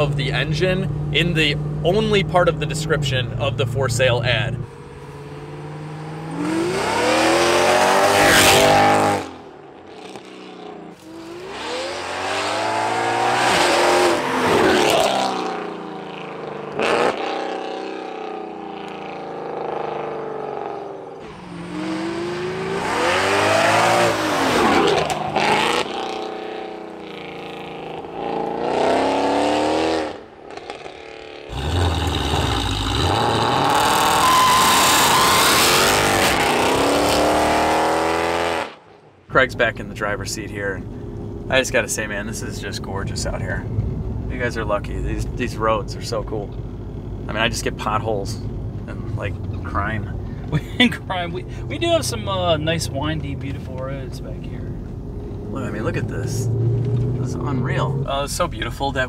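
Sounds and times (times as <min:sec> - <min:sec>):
deep car rumble: 0:00.0 - 0:38.1, 0:39.2 - 0:59.0
car engine accelerating hard: 0:04.6 - 0:38.8, 0:46.0 - 0:59.0.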